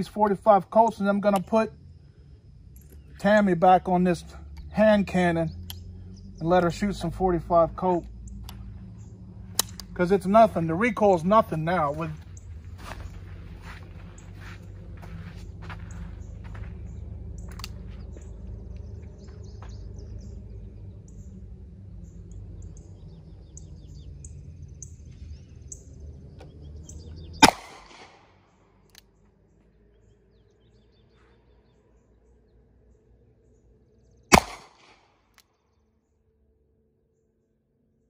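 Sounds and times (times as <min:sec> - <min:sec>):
low steady rumble: 0:00.0 - 0:38.0
revolver gunshot with echo: 0:27.4 - 0:28.3, 0:34.3 - 0:35.1.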